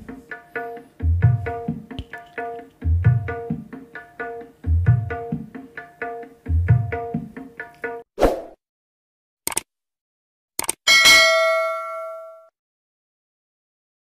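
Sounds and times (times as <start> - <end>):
music with drums over loudspeakers: 0.0 - 7.7.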